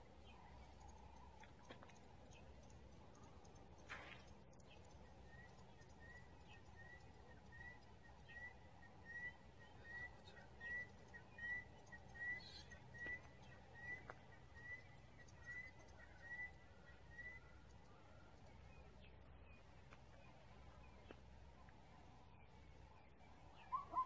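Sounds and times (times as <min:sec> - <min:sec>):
bird whistling call: 0:06.8 - 0:13.2, 0:23.6 - 0:24.0.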